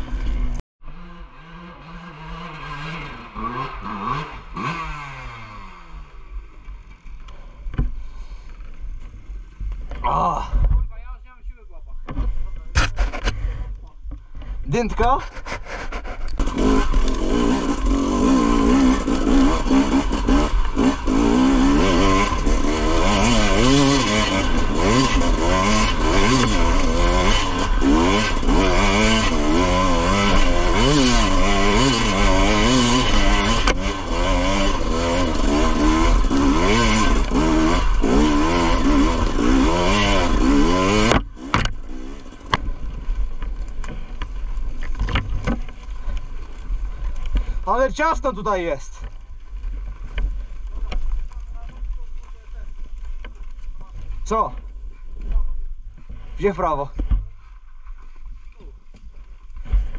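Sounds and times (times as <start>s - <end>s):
two-stroke engine revving: 0.0s - 7.0s, 15.3s - 44.2s.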